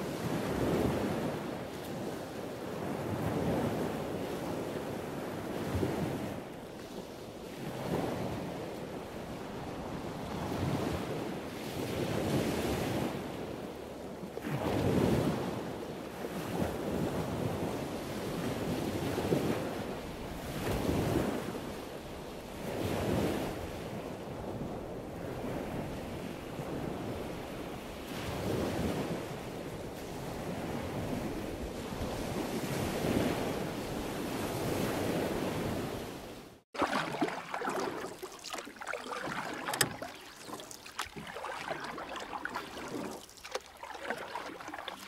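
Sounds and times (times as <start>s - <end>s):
surf washing onto beach: 36.8s - 45.0s.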